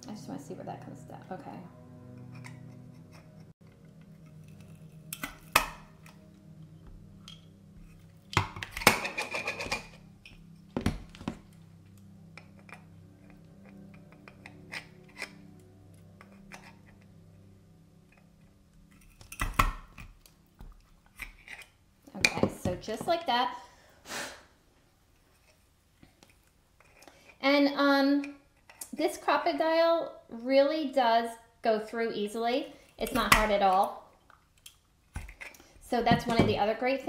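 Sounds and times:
background music: 0.0s - 25.9s, 35.0s - 37.0s.

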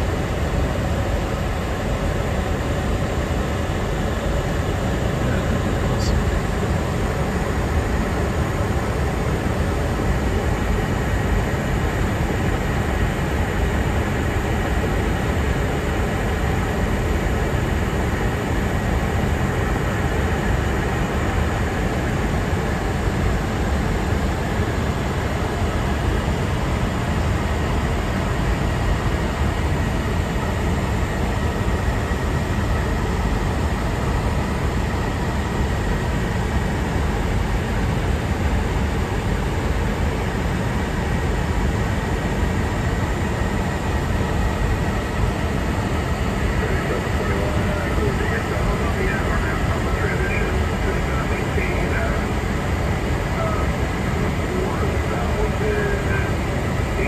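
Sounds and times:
airflow rush in cockpit: 0.0s - 57.0s
faint steady whine: 0.0s - 57.0s.

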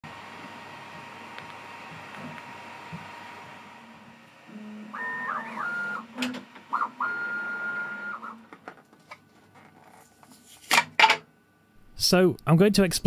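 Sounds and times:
stepper motors whining: 0.0s - 8.6s.

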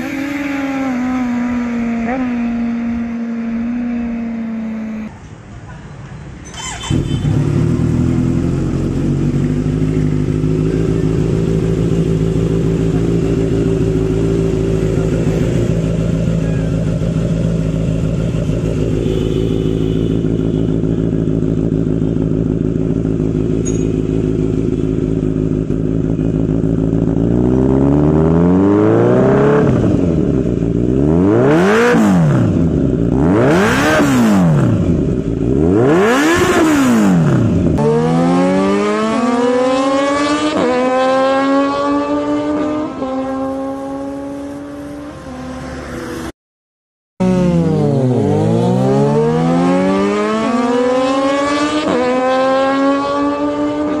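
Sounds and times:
motorcycle accelerating hard: 0.0s - 5.1s, 6.5s - 46.3s, 47.2s - 54.0s
motorcycle throttle revs: 0.0s - 5.2s, 6.4s - 45.8s, 47.2s - 54.0s
motorcycle engine idling: 6.6s - 27.6s.

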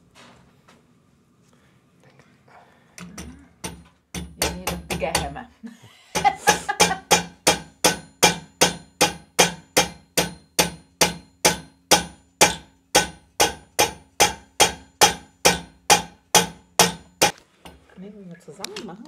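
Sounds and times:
hammer striking metal: 3.2s - 5.4s, 6.2s - 17.8s.

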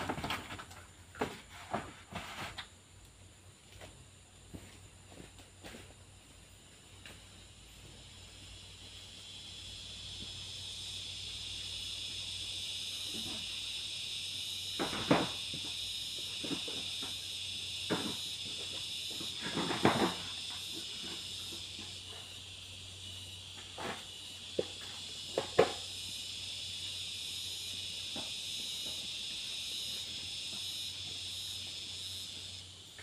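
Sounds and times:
forest insects droning: 0.0s - 33.0s.

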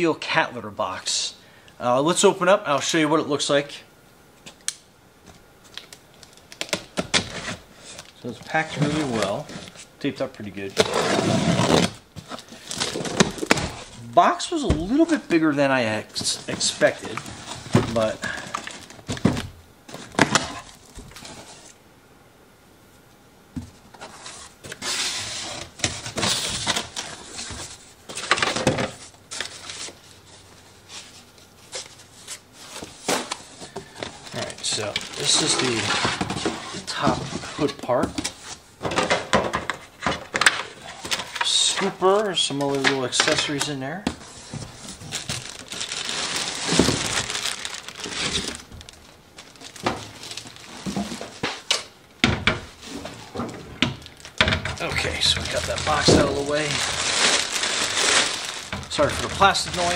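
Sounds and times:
plastic wrapping crinkling: 5.6s - 10.8s, 33.2s - 36.1s, 40.4s - 51.7s, 54.0s - 59.9s
cardboard scraping and rustling: 7.1s - 9.9s, 10.7s - 14.0s, 16.1s - 21.8s, 23.9s - 38.6s, 54.8s - 59.9s.

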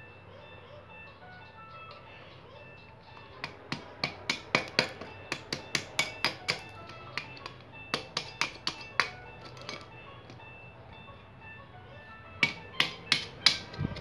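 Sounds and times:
background music: 0.0s - 14.0s
metal blade knocking pine cone: 3.4s - 9.8s, 12.4s - 13.8s.

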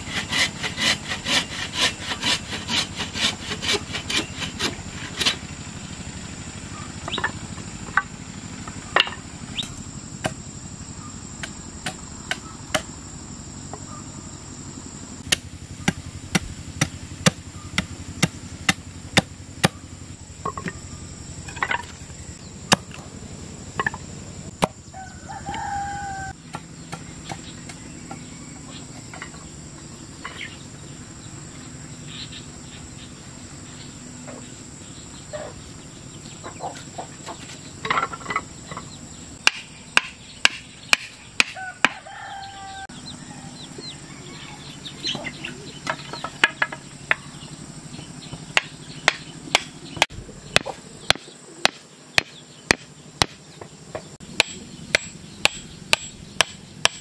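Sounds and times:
high insect drone: 0.0s - 57.0s
hammer knocking bamboo stakes: 15.2s - 19.8s, 26.5s - 28.3s, 37.8s - 42.0s, 45.8s - 47.2s, 48.5s - 57.0s
chicken calling: 24.9s - 26.4s, 41.5s - 46.4s.

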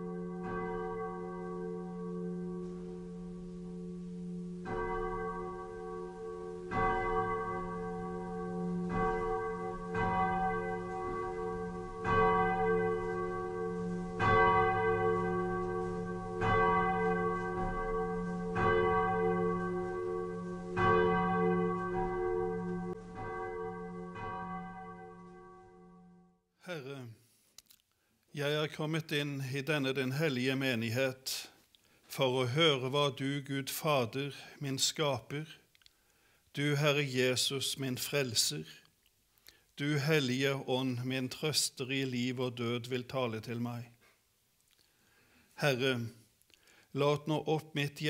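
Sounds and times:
church bell ringing: 0.0s - 27.0s.

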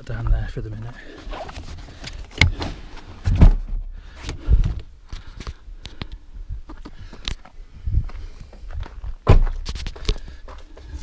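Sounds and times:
loud thuds: 9.2s - 9.7s.

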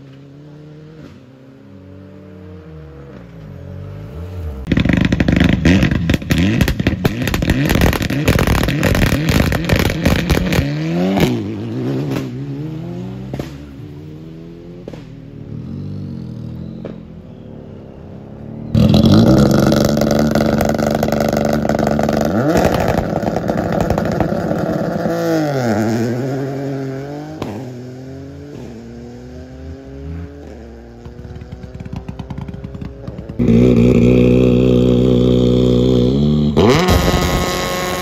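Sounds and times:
rally car engine revving: 4.0s - 15.8s, 18.7s - 38.0s.

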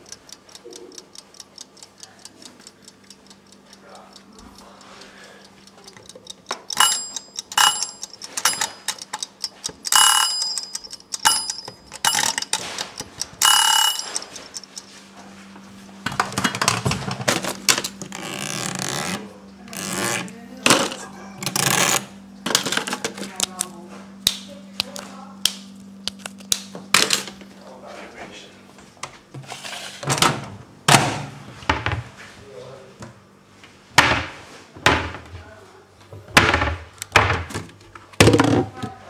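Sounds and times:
rustling and scraping: 29.2s - 30.1s.

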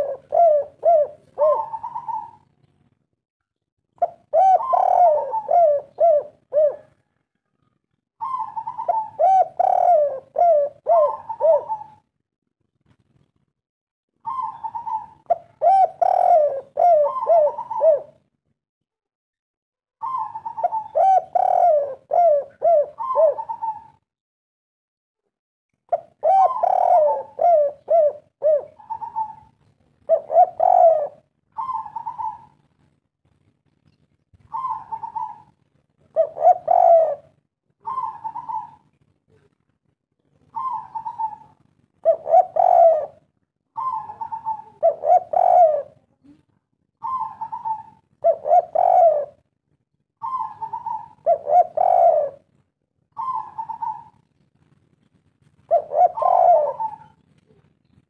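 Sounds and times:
dove cooing: 0.0s - 2.6s, 4.0s - 12.1s, 14.2s - 18.3s, 20.0s - 24.0s, 25.9s - 32.7s, 34.4s - 39.5s, 40.3s - 46.4s, 47.0s - 49.6s, 50.2s - 54.4s, 55.6s - 57.7s.

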